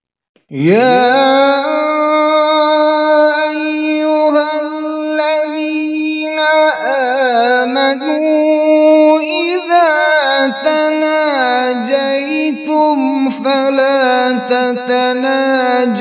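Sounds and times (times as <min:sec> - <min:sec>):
man reciting melodically: 0:00.4 - 0:16.0.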